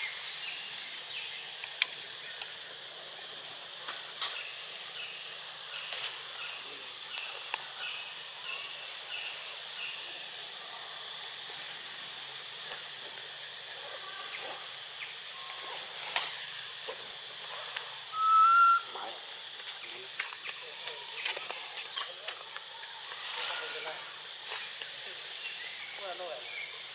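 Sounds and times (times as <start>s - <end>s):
insect buzzing: 0.0s - 26.9s
short chirps: 18.1s - 18.9s
loud whistled call: 18.1s - 19.1s.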